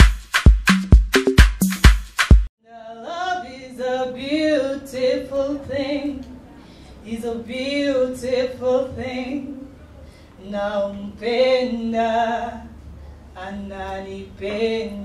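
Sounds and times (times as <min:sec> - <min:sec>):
person singing unaccompanied: 0:02.6 - 0:06.4, 0:13.4 - 0:15.0.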